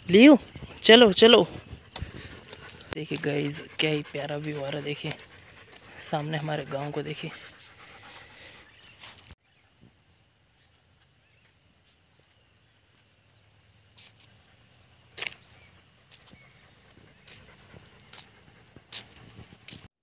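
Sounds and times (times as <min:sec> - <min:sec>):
high insect chirps: 0:00.0 - 0:19.9.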